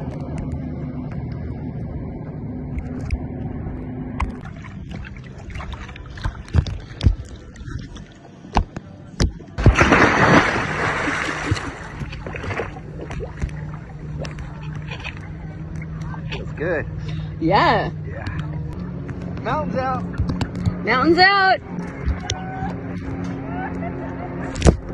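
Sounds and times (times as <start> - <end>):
boat engine humming: 0.0 - 24.9
loud water splash: 9.6 - 12.8.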